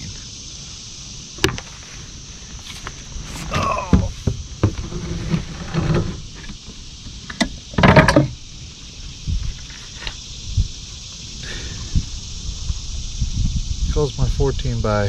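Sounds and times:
scraping in plastic kayak: 2.6 - 6.5.

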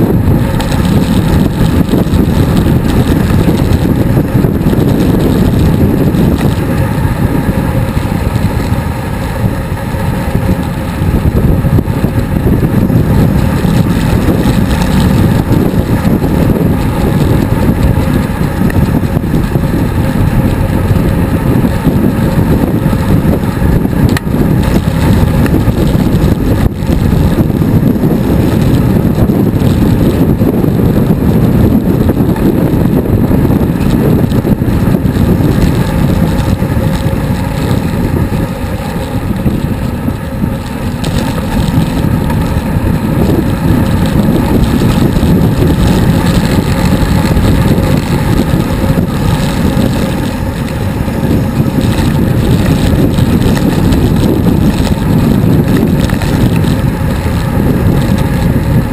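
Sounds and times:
wind rushing over microphone: 0.0 - 58.9.

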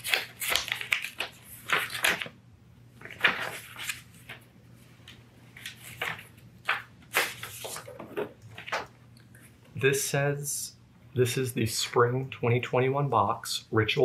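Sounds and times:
paper envelope rustling: 0.0 - 2.4, 3.0 - 4.5, 5.1 - 9.0.

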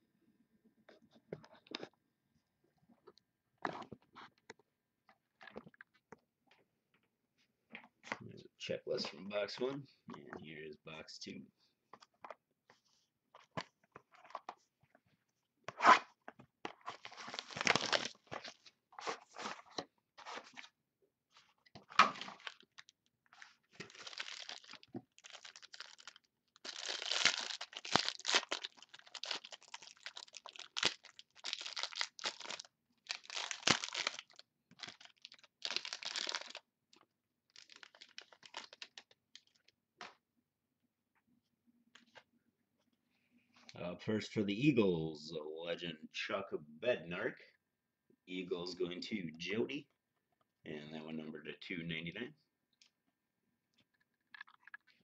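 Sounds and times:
wrapping tearing and crinkling: 16.8 - 20.7, 21.4 - 39.7.

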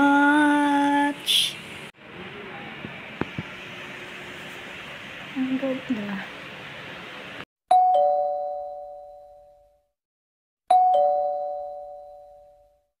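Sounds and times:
two-tone ding-dong chime: 7.7 - 9.8, 10.7 - 12.8.

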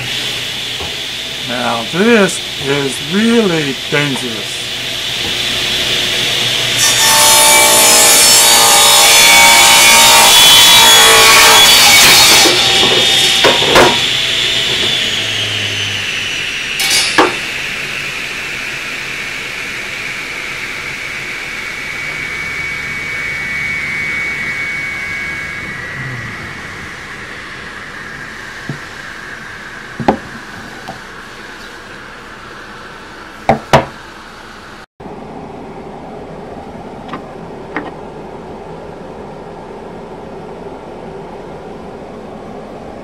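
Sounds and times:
table saw cutting wood: 0.0 - 31.8
saw blade whine coasting down: 0.0 - 33.4.

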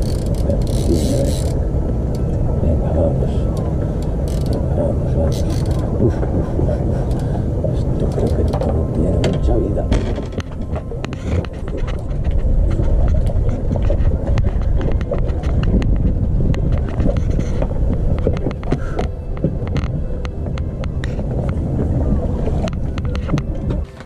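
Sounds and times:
fishing gear clicks and knocks: 0.0 - 1.6, 3.6 - 4.6, 5.3 - 5.9, 8.0 - 21.9
wind buffeting microphone: 0.0 - 24.0.

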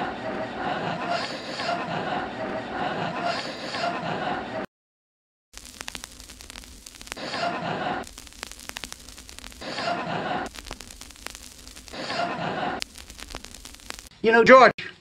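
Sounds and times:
faint clicks: 5.6 - 7.4, 8.0 - 14.1.

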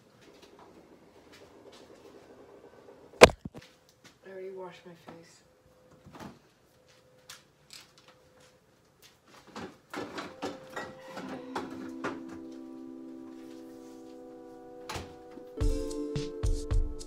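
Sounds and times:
background music with sustained chords: 10.3 - 17.0.

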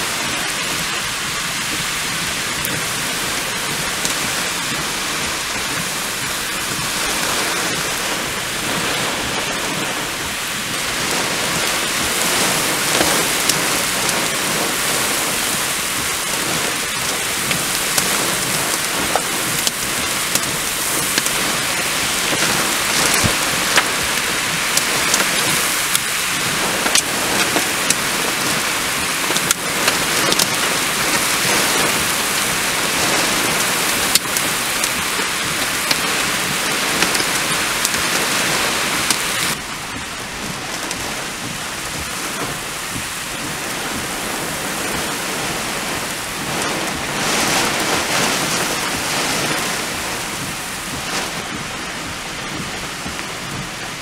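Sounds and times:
heavy rain hissing: 0.0 - 54.0
raindrops ticking close by: 0.0 - 54.0.

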